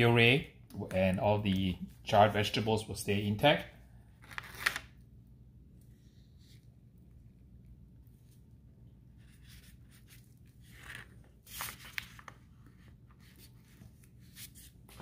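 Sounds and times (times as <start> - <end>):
rustling of gloves and paper: 8.1 - 15.0.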